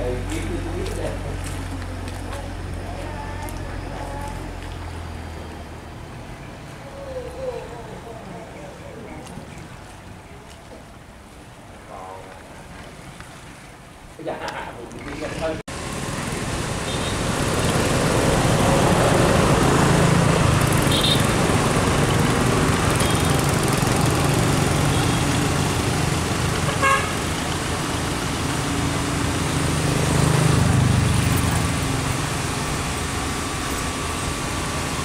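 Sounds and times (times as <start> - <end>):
boat engine running: 15.7 - 35.0.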